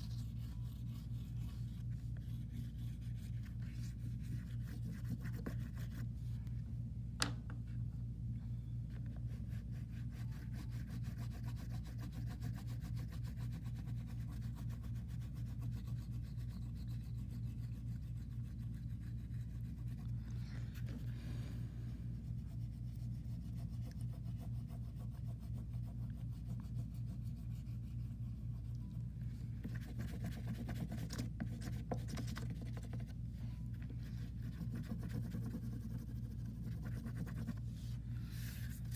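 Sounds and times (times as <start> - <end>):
pastel scratching on paper: 0.0 - 6.4, 9.0 - 21.2, 22.0 - 38.9
low hum: 0.0 - 10.8.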